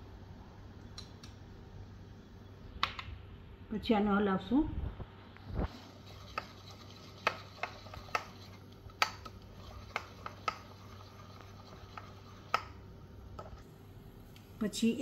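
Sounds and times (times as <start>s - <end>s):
spoon stirring thick batter: 5.7s - 12.8s.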